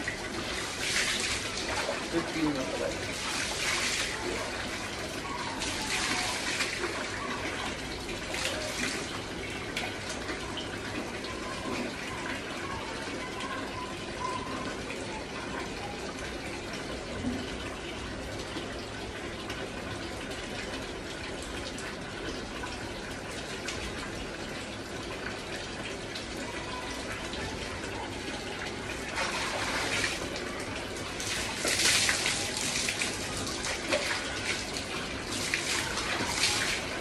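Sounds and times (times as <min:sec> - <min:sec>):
water splashing on tiled floor: 0:00.0 - 0:10.3, 0:28.4 - 0:37.0
tap running into bucket: 0:28.6 - 0:37.0.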